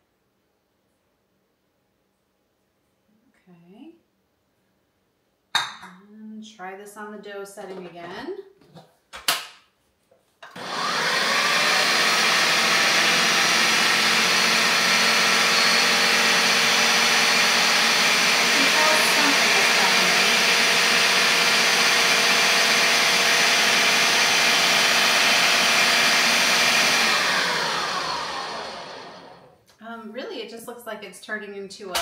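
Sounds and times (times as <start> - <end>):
food processor motor running: 10.5 - 29.6.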